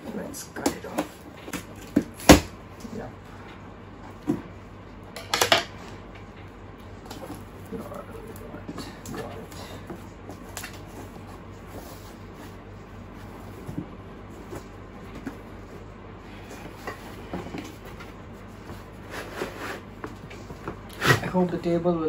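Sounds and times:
faint low hum: 0.0s - 22.0s
cardboard scraping and rustling: 16.4s - 21.4s.

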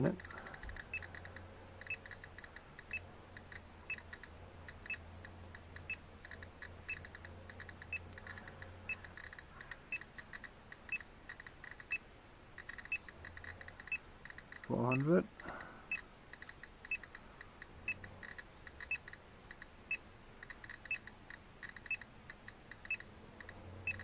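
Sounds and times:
geiger counter clicking: 0.0s - 24.0s.

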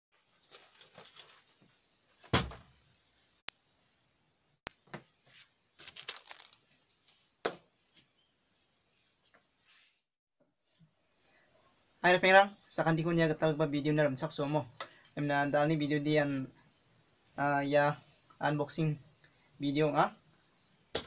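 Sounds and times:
crickets chirping: 0.2s - 21.0s
loud thump: 2.2s - 2.7s
parcel and bag rustling: 5.8s - 6.7s.

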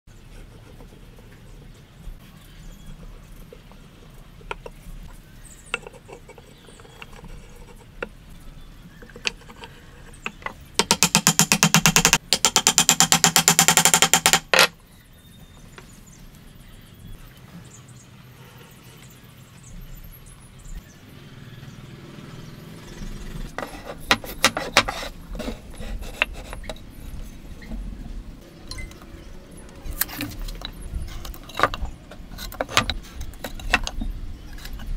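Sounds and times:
wood knocking on wood: 9.0s - 14.7s, 23.6s - 26.8s.

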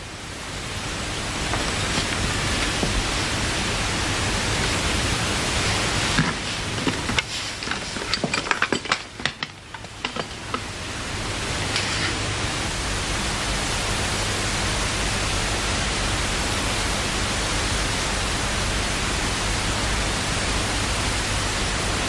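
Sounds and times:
tape hiss: 0.0s - 22.0s
small clicks and knocks: 6.2s - 10.7s.

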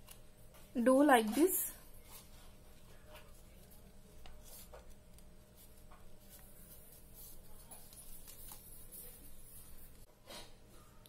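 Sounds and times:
soft paper crackle: 1.9s - 10.1s
paper rustling and crinkling: 2.0s - 10.1s.

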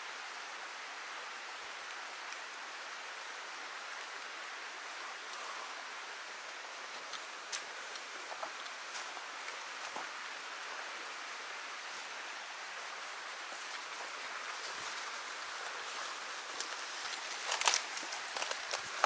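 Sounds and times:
stream water flowing: 0.0s - 19.0s
leaves and twigs crackling underfoot: 11.7s - 19.0s.

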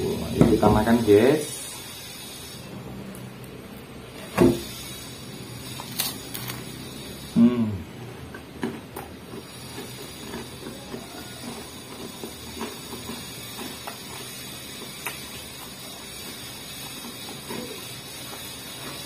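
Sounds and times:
person humming mmm: 7.3s - 8.2s
chewing and mouth clicks: 8.3s - 19.0s
angle grinder running: 9.3s - 19.0s.

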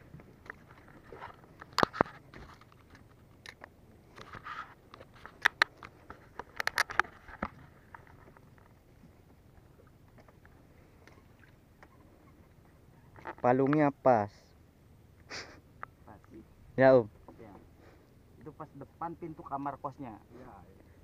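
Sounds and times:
fishing gear clicking and knocking: 0.4s - 8.8s.

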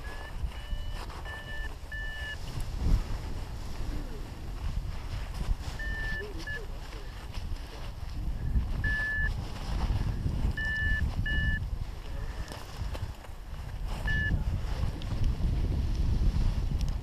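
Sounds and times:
variometer electronic beeps: 0.0s - 2.4s, 5.8s - 6.7s, 8.5s - 9.3s, 10.6s - 11.6s, 14.0s - 14.4s
wind rumble on microphone: 0.0s - 17.0s.

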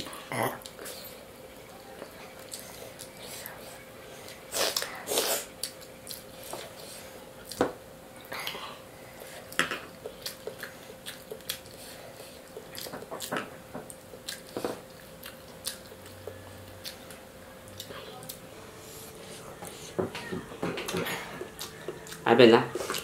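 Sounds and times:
faint steady hum: 0.0s - 23.0s
chewing and mouth smacks: 4.3s - 6.8s, 9.5s - 18.4s.

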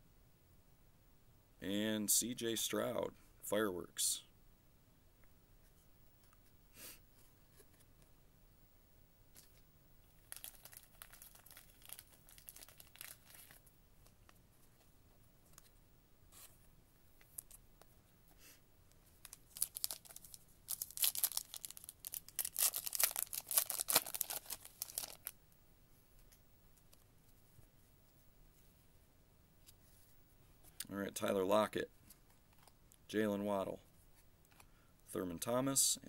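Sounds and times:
wrapper tearing and crinkling: 10.1s - 13.6s, 19.2s - 25.3s.

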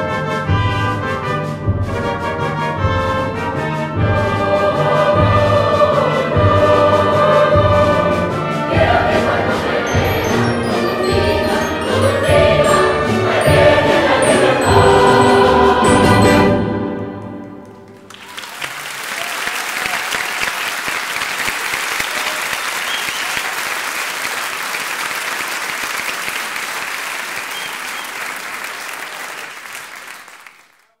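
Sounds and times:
orchestra and choir chord: 3.9s - 18.1s
audience applauding: 17.4s - 31.0s.

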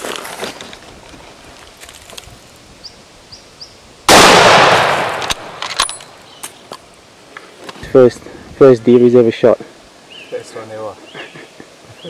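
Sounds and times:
rifle shot: 4.1s - 6.2s.

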